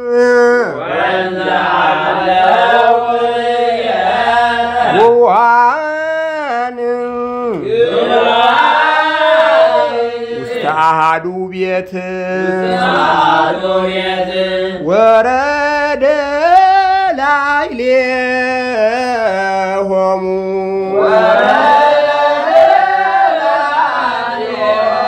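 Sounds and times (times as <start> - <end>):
man chanting a hymn: 0.0 - 25.0.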